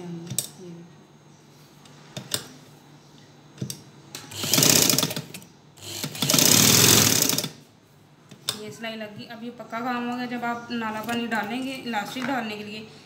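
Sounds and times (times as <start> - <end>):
sewing machine stitching: 4.3 - 7.6.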